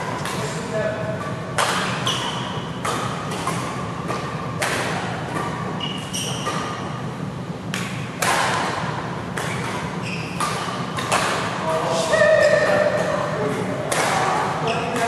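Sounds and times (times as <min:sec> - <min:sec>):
rackets hitting shuttlecock: 0:00.0 - 0:15.0
shoes squeaking on court: 0:01.2 - 0:07.1, 0:09.4 - 0:11.6, 0:14.4 - 0:15.0.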